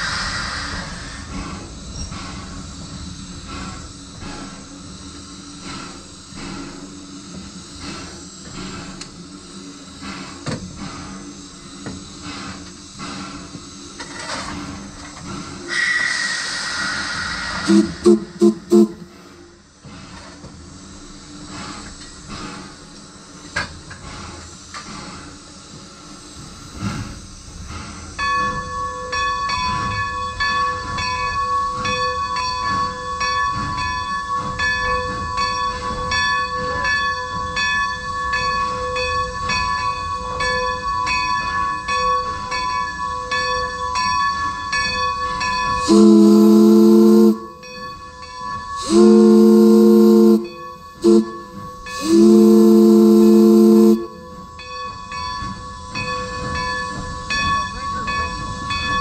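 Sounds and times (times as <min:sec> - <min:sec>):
steam locomotive hissing: 0:00.0 - 0:28.2, 0:45.6 - 0:48.1, 0:48.8 - 0:54.6
steam whistle blasts: 0:15.8 - 0:19.3, 0:45.8 - 0:47.8, 0:48.8 - 0:54.5
locomotive bell ringing: 0:45.6 - 0:59.0.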